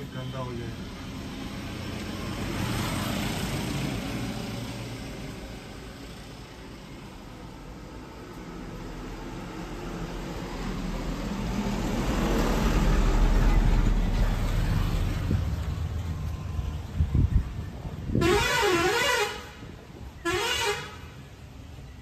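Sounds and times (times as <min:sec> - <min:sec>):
vehicle passing rumble: 0:00.7 - 0:20.3
warbling vehicle horn: 0:18.2 - 0:19.6, 0:20.2 - 0:21.1.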